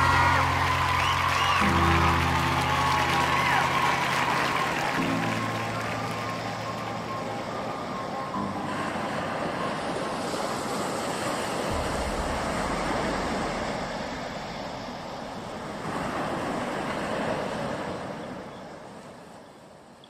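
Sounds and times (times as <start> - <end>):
ocean surf washing in: 0.0 - 19.8.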